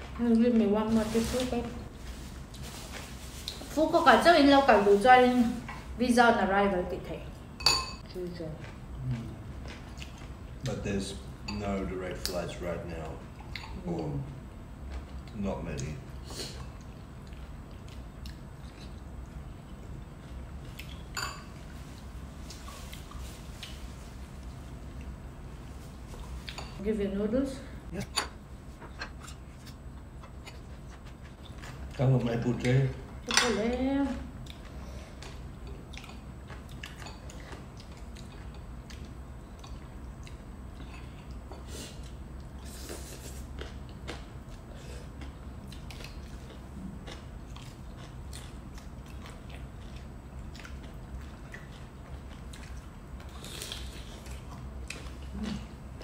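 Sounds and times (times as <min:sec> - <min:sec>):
low room hum: 0:00.0 - 0:56.0
chewing: 0:34.4 - 0:55.8.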